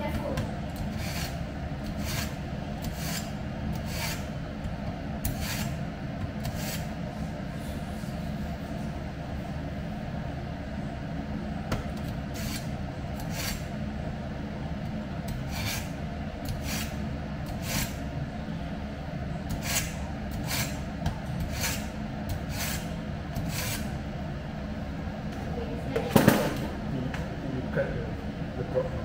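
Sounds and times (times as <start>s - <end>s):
steady low hum: 0.0s - 29.0s
knife scraping through sharpener: 0.9s - 4.2s, 5.3s - 5.8s, 6.4s - 6.9s, 12.4s - 13.6s, 15.5s - 15.9s, 16.5s - 18.0s, 19.5s - 20.8s, 21.4s - 21.9s, 22.5s - 23.9s.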